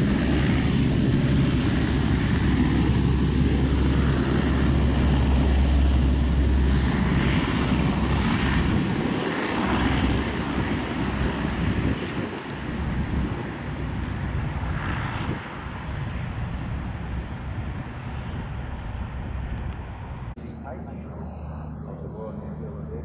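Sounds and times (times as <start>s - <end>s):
turboprop aircraft engines droning: 0.0s - 23.0s.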